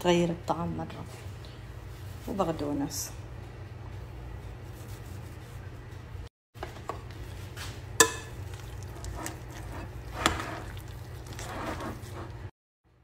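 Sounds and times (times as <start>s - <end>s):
utensil stirring mash in bowl: 8.0s - 12.5s.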